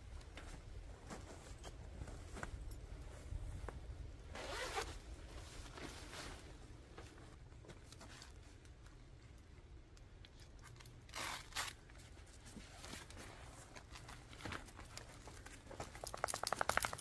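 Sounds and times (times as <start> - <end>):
fabric rustling: 1.0 - 7.4
velcro ripping: 4.4 - 4.9, 10.8 - 11.8.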